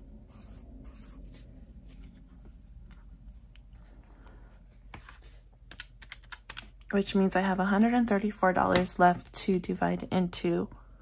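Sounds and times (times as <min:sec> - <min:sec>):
pen scratching on paper: 0:00.2 - 0:02.6.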